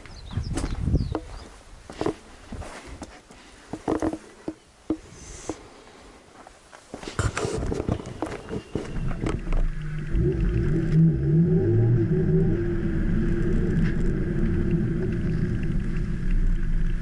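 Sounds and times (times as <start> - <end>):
road noise: 6.8 - 17.0.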